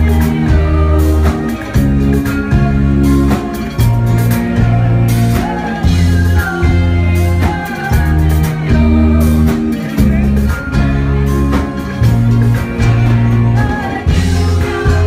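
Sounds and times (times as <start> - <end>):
bass guitar notes: 0.0 - 15.0
live rock band playing: 0.0 - 15.0.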